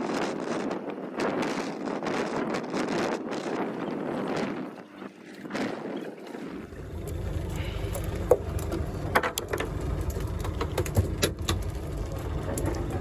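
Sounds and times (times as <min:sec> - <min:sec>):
boat engine rumble: 0:00.0 - 0:13.0
wind on microphone: 0:00.0 - 0:13.0
fishing gear clicking and knocking: 0:07.0 - 0:13.0.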